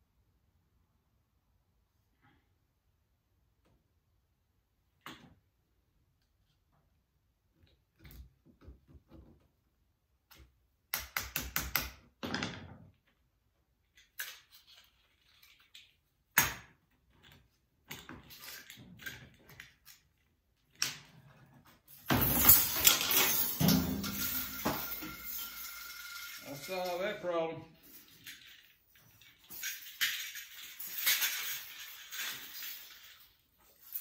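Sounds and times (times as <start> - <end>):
small metal parts clicking: 13.9 - 16.1, 27.9 - 34.0.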